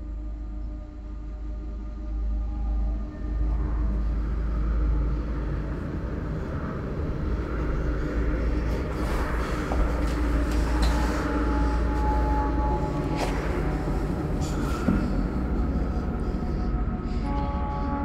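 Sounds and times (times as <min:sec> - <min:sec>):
dark ambient drone: 0:00.0 - 0:18.0.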